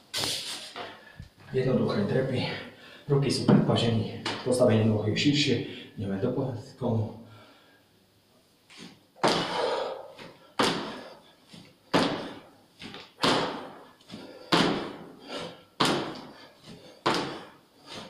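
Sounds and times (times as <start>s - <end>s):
feet thudding on hard floor: 8.7s - 18.0s.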